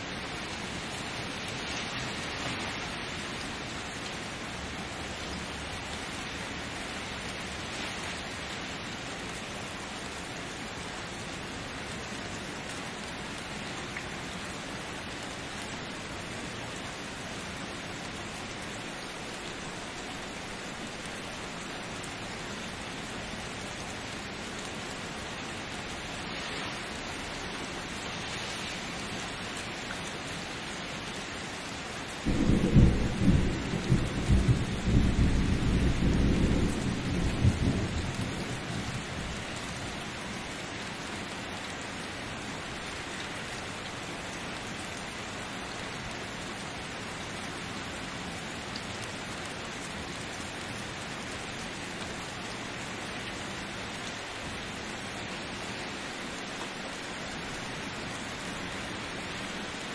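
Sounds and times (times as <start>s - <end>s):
steady rain: 0.0s - 59.9s
thunder rumbling: 32.3s - 39.5s.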